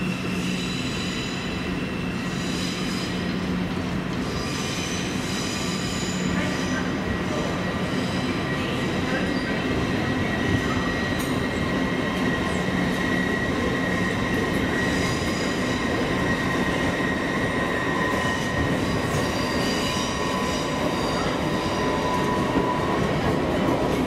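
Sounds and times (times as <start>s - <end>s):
electric train hum and whine: 0.0s - 24.0s
wheels squealing: 10.8s - 23.4s.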